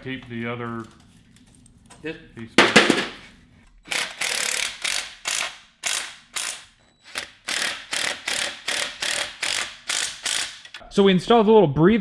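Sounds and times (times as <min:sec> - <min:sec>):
socket ratchet clicking: 0:03.9 - 0:10.8.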